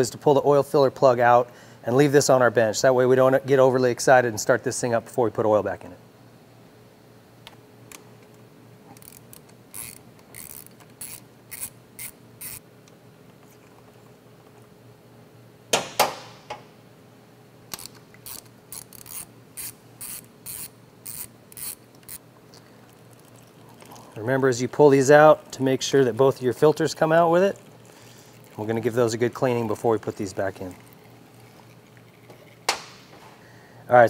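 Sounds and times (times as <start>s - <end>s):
ratchet wrench clicking: 9.0s - 12.6s, 17.7s - 22.2s.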